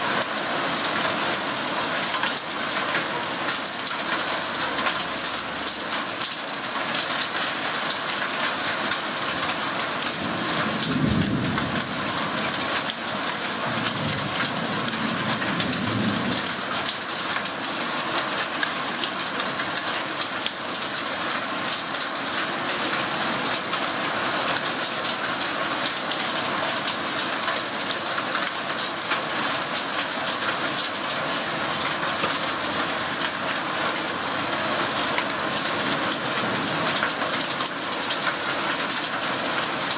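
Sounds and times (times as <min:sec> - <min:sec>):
heavy rain pattering: 0:00.0 - 0:39.9
thunder rumbling: 0:10.8 - 0:12.0.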